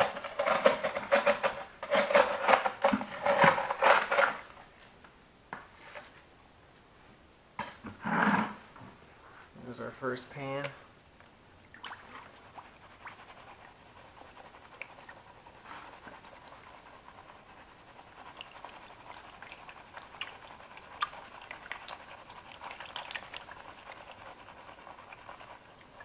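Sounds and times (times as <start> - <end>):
water sloshing in a plastic pan: 11.6 - 13.7, 18.3 - 26.0.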